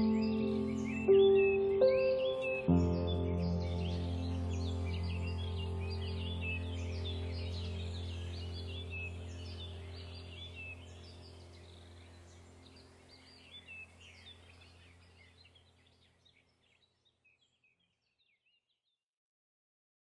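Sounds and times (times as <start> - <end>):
birdsong chirps: 0.0 - 19.0
steady low hum: 3.4 - 15.8.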